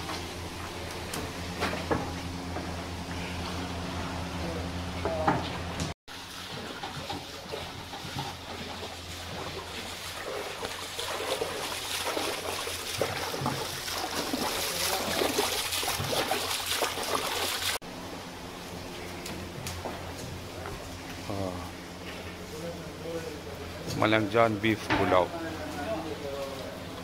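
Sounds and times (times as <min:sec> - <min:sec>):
low steady hum: 0:00.0 - 0:27.0
hands washing rice in water: 0:06.1 - 0:17.8
water running from hose: 0:06.1 - 0:17.8.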